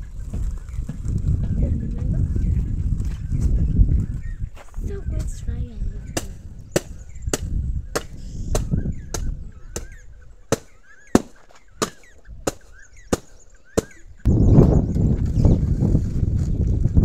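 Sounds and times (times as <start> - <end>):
birds chirping faintly: 0.0 - 16.0
stick beating bean pods: 6.2 - 14.0.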